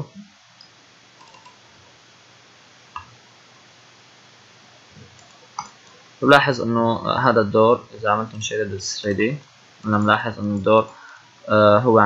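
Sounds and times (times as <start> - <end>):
room hiss: 0.0 - 12.0
computer mouse clicks: 0.6 - 1.6, 5.0 - 6.0.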